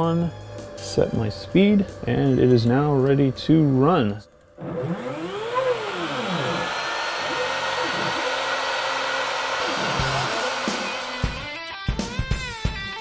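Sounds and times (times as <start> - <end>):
axis motors whining in glides: 4.6 - 11.6
router spindle whirring whine: 4.6 - 11.6.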